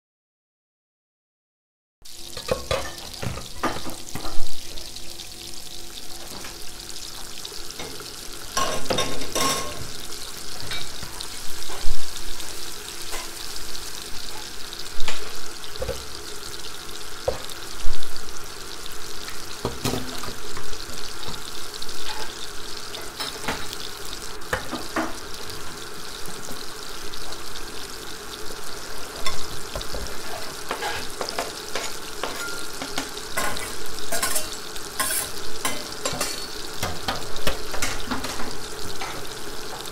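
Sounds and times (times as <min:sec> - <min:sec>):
food sizzling in hot oil: 0:02.0 - 0:39.9.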